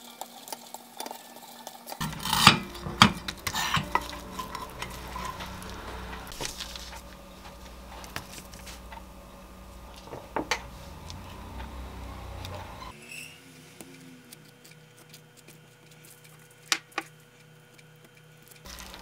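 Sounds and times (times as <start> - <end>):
spatula scraping a frying pan: 2.0 - 7.0.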